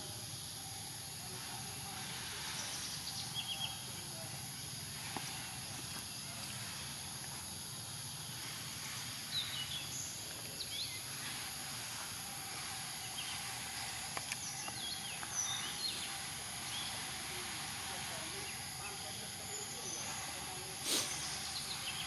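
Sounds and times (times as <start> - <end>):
high insect drone: 0.0 - 22.0.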